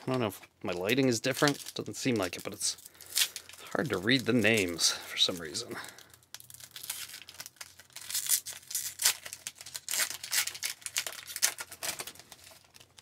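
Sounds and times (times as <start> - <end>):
foil wrapper crinkling and tearing: 0.1 - 13.0.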